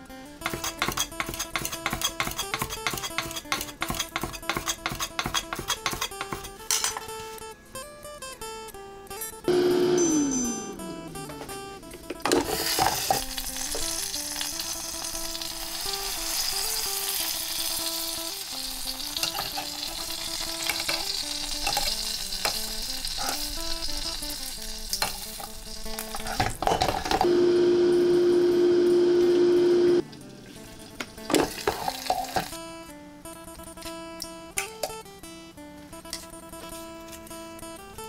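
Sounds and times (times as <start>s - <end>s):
air fryer fan humming: 9.5s - 24.9s, 25.6s - 32.2s
meat sizzling in air fryer: 12.3s - 32.6s.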